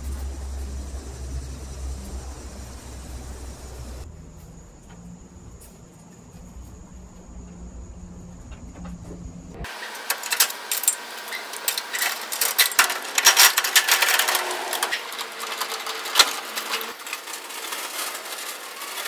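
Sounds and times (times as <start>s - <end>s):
jack wheel rolling on concrete: 0.0s - 4.1s, 8.4s - 19.0s.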